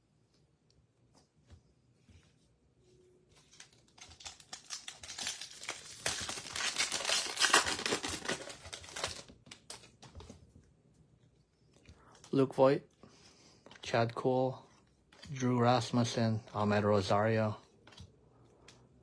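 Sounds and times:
plastic wrapper tearing and crinkling: 0:03.4 - 0:10.0.

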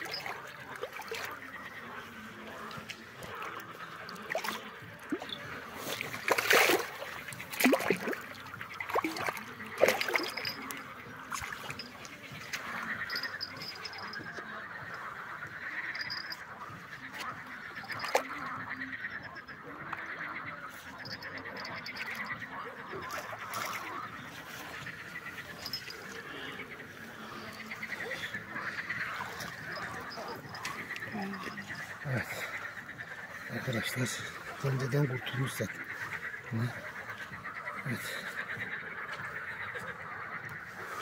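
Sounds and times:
fish splashing in water: 0:00.0 - 0:18.6, 0:20.9 - 0:33.5
water sloshing: 0:00.0 - 0:41.0.

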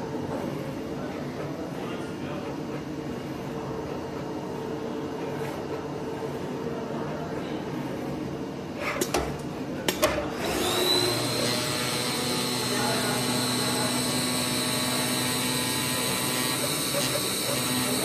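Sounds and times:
machine hum: 0:09.4 - 0:18.0
high steady machine whine: 0:10.0 - 0:18.0.

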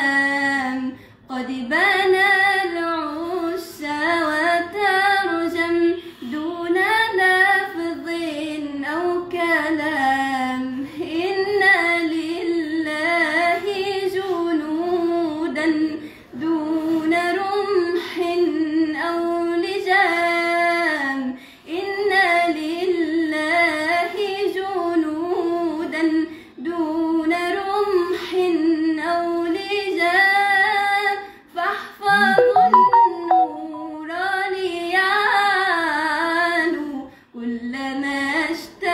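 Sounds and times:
girl singing solo: 0:32.1 - 0:33.9.

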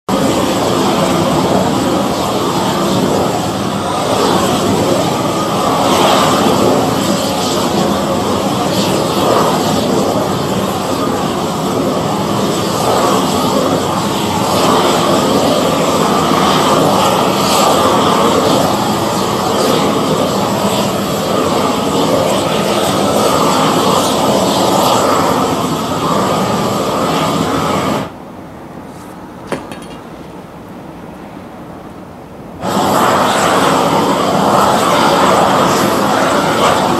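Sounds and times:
gas torch burning: 0:00.1 - 0:28.2, 0:28.8 - 0:30.5, 0:32.6 - 0:36.9.

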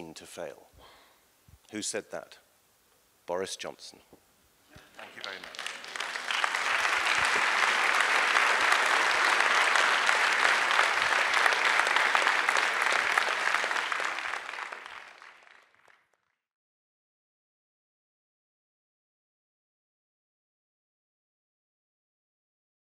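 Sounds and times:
crowd clapping: 0:04.8 - 0:16.4.

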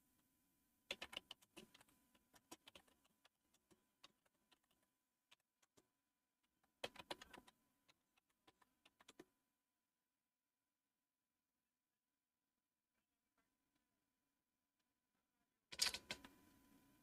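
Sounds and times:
keyboard typing: 0:00.9 - 0:09.3, 0:15.7 - 0:16.4.

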